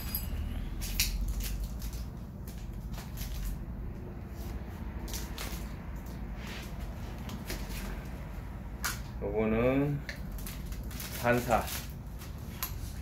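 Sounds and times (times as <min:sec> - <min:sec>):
plastic wrapping crinkling: 0:00.0 - 0:03.7, 0:10.1 - 0:13.0
low background hum: 0:00.0 - 0:13.0.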